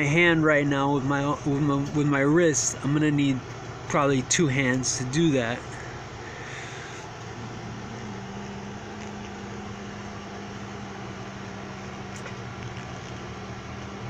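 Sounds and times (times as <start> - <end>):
low machine hum: 0.0 - 14.0
even hiss: 2.1 - 11.9.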